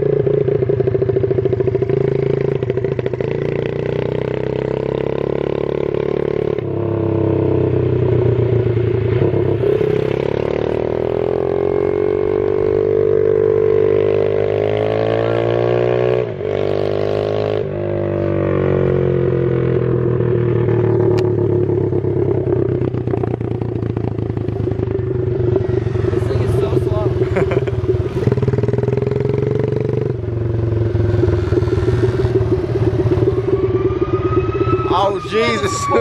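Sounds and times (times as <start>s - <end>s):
moped engines revving: 0.0s - 36.0s.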